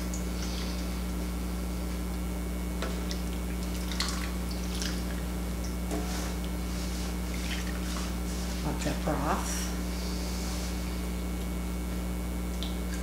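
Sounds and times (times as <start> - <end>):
steady low hum: 0.0 - 13.0
soup splashing and dripping: 2.9 - 6.6.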